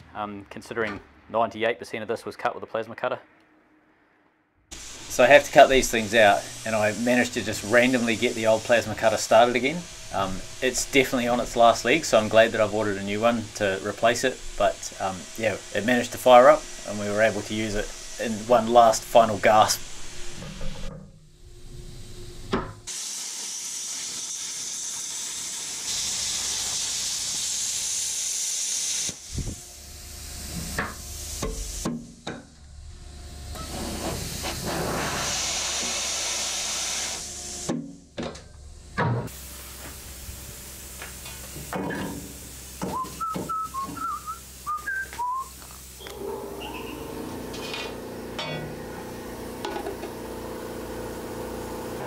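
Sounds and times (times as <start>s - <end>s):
plasma cutter hissing: 4.7s - 20.9s, 21.6s - 32.0s, 33.3s - 37.7s, 39.3s - 49.7s.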